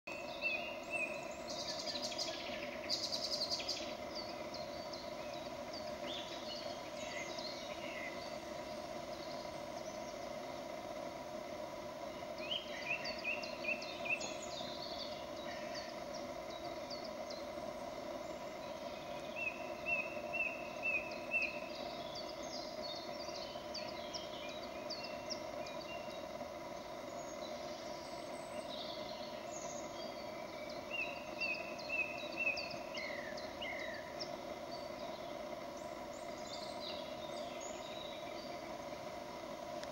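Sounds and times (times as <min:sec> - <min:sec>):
steady hum: 0:00.1 - 0:39.9
woodland birds calling: 0:00.1 - 0:39.9.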